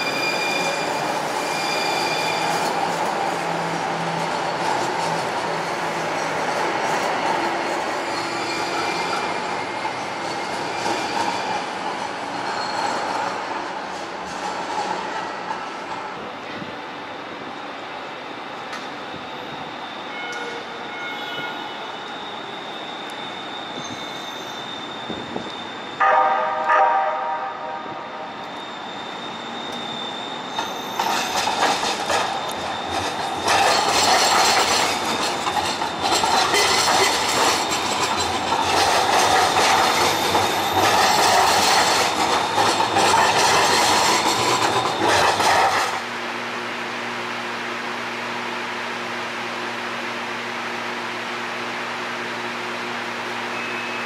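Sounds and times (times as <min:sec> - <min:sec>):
train wheels on rails: 0:00.0 - 0:54.0
train horn chord: 0:26.0 - 0:28.0.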